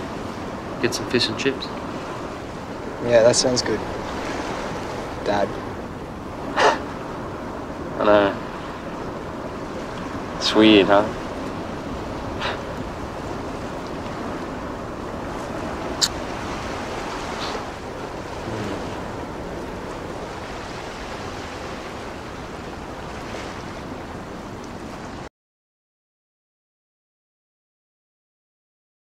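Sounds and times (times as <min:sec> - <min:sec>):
ocean surf on rocks: 0:00.0 - 0:25.3
wind on microphone: 0:00.0 - 0:25.3.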